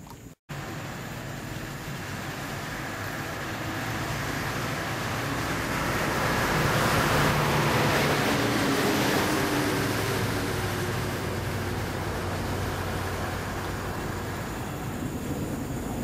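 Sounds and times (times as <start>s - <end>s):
road traffic rushing: 0.5s - 16.0s.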